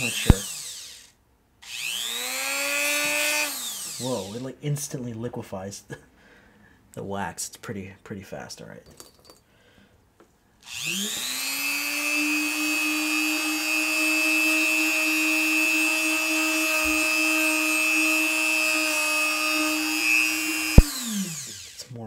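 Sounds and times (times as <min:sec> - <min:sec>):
rotary tool whining: 0:00.0 - 0:04.4, 0:10.6 - 0:22.0.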